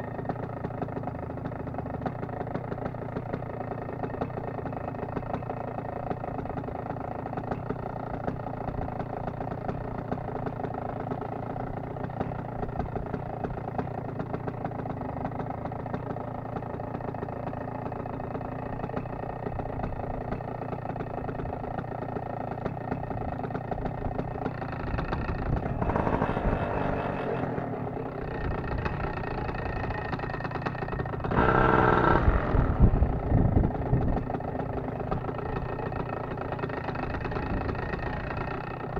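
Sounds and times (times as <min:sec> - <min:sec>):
paramotor engine idling: 0:00.0 - 0:38.9
engine revving: 0:25.1 - 0:29.7, 0:31.2 - 0:33.2.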